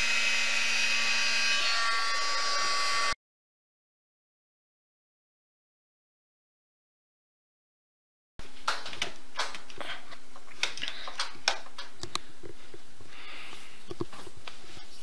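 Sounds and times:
heat gun blowing: 0:00.0 - 0:03.2
cardstock clicks and crackles: 0:08.6 - 0:12.2.

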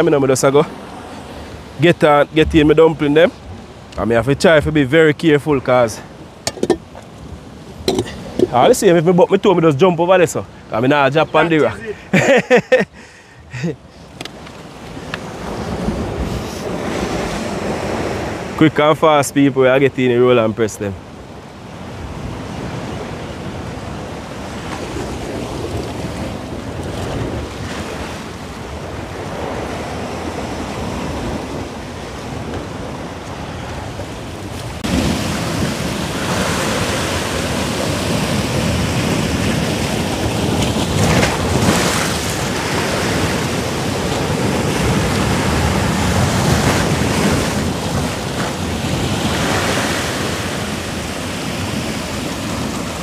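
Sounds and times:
surf washing on rocks: 0:00.0 - 0:53.0
wind buffeting microphone: 0:00.9 - 0:04.0.

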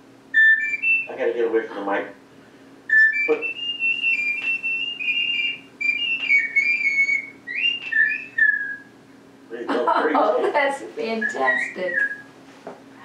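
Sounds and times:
ocarina tune: 0:00.4 - 0:01.2, 0:02.9 - 0:08.8, 0:11.2 - 0:12.2.

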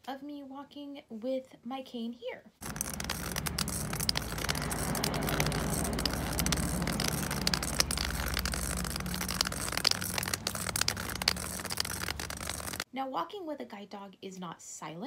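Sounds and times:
cane tip rolling on concrete: 0:02.6 - 0:12.8.

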